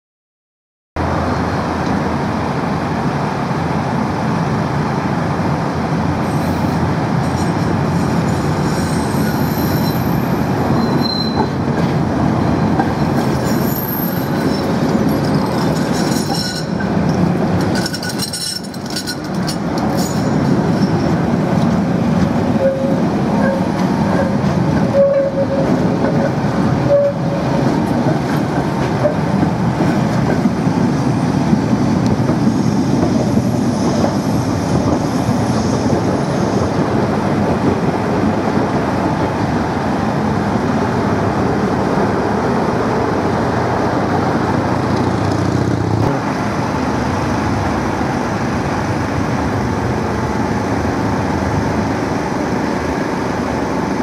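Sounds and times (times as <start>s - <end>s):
tram wheels rumbling on rails: 1.0s - 54.0s
high-pitched wheel squeal: 8.3s - 11.6s, 13.2s - 16.9s, 22.6s - 25.8s, 26.8s - 27.4s.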